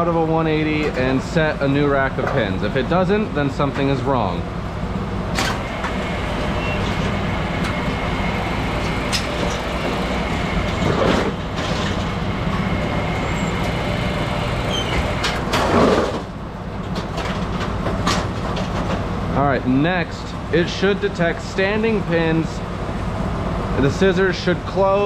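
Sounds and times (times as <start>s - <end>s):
machine drone: 5.0s - 16.4s.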